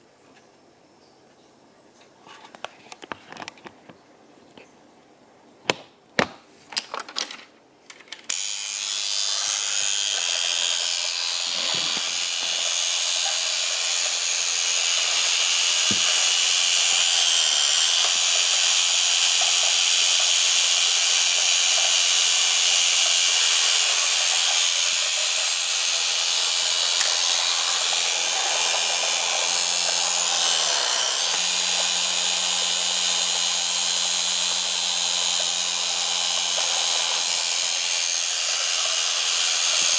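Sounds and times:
toy car motor whirring: 0:08.3 - 0:39.9.

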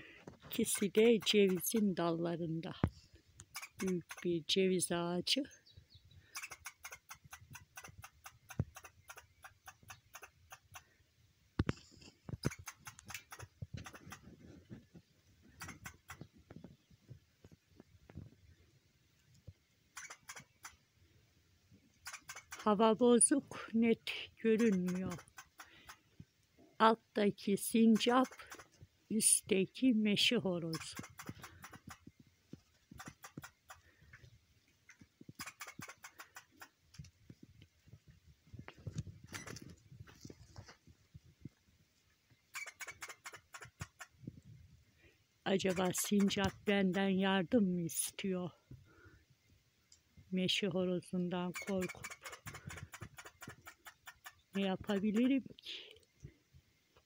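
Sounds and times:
squirrel chattering: 0:00.6 - 0:01.9, 0:03.5 - 0:04.3, 0:06.3 - 0:10.8, 0:12.4 - 0:14.2, 0:15.6 - 0:16.2, 0:20.0 - 0:20.8, 0:22.0 - 0:22.8, 0:24.5 - 0:26.0, 0:27.8 - 0:28.7, 0:30.7 - 0:32.1, 0:34.9 - 0:36.7, 0:42.5 - 0:44.2, 0:45.5 - 0:47.0, 0:51.4 - 0:55.4.

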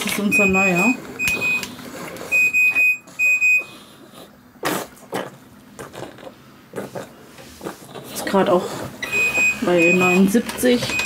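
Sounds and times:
high alarm beeps: 0:00.2 - 0:01.7, 0:02.3 - 0:03.7, 0:09.0 - 0:11.0.

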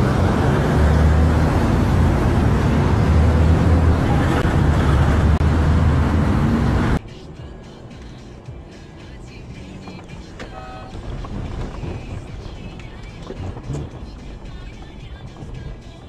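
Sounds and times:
roadside traffic noise: 0:00.0 - 0:16.0
heavy low rumble: 0:10.8 - 0:15.8.

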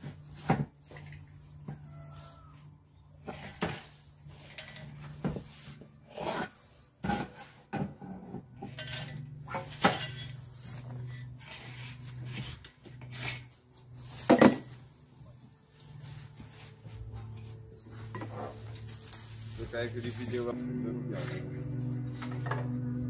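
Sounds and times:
steady low hum: 0:02.6 - 0:23.0
metal fitting scraping and knocking: 0:06.2 - 0:10.4.

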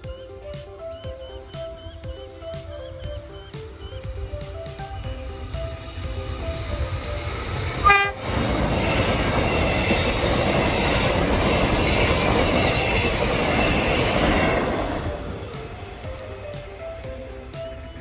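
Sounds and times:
train wheels rushing on rail: 0:00.4 - 0:18.0
train horn blast: 0:07.8 - 0:14.2.

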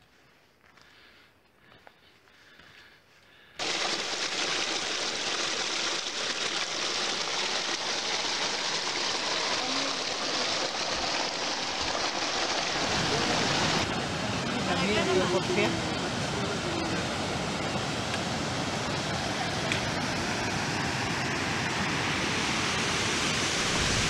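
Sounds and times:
stream rushing over rocks: 0:03.6 - 0:24.0.

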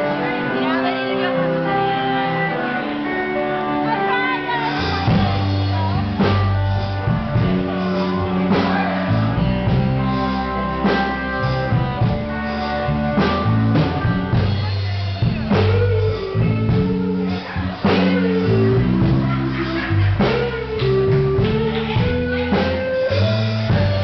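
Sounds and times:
bass line: 0:00.0 - 0:24.0
drums: 0:00.0 - 0:24.0
guitar: 0:00.0 - 0:24.0
person singing: 0:00.0 - 0:24.0.

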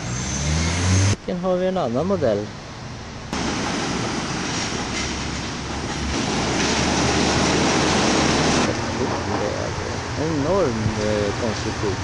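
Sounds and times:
suspension train rumbling past: 0:02.8 - 0:12.0.

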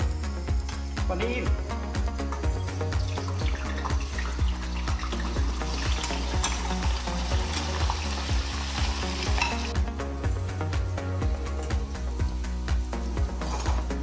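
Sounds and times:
oil sizzling and bubbling: 0:01.8 - 0:14.0
strainer stirring in pan: 0:03.3 - 0:09.7.

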